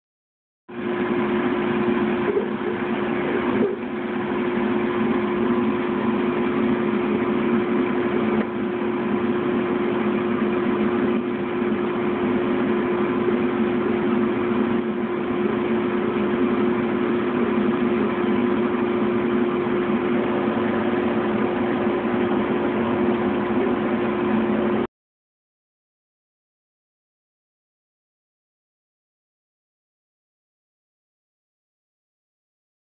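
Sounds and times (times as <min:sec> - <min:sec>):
laser engraver humming: 0:01.0 - 0:24.9.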